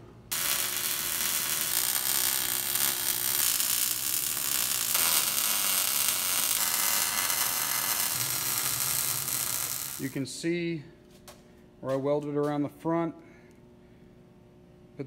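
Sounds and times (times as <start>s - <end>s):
welding arc sizzling: 0.3s - 10.4s.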